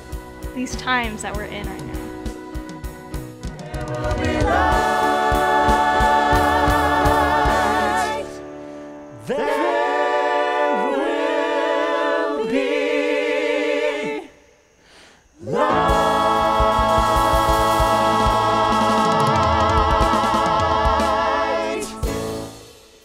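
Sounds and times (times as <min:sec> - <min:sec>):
band beat: 0:01.3 - 0:08.2, 0:15.6 - 0:22.6
cast singing in harmony: 0:03.6 - 0:08.5, 0:09.1 - 0:14.8, 0:15.4 - 0:22.6.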